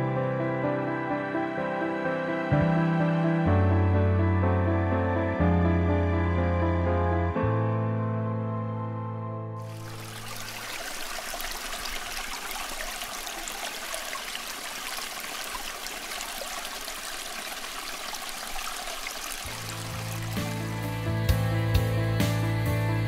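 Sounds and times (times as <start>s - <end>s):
background music: 0.0s - 10.2s, 19.5s - 23.0s
river water rushing: 9.6s - 20.7s.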